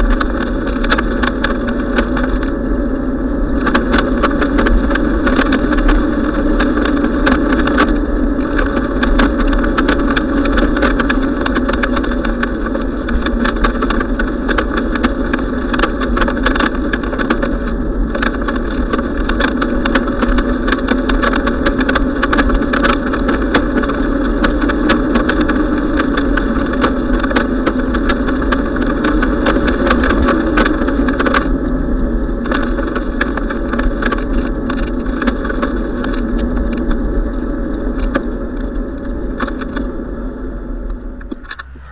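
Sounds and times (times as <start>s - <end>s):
small rattling clicks: 0.0s - 2.6s, 3.6s - 31.6s
bicycle rolling on asphalt: 0.0s - 41.9s.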